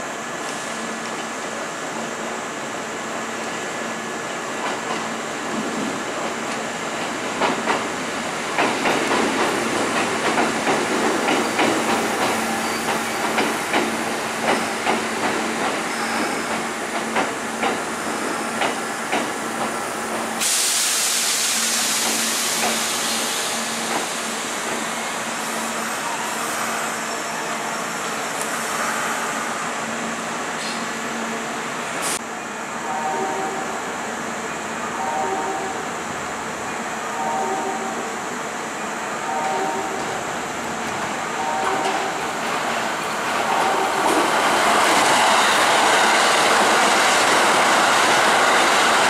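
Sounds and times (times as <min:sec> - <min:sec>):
train wheels clacking: 0:06.2 - 0:07.9, 0:08.5 - 0:24.9
compressed air hiss: 0:20.4 - 0:23.7.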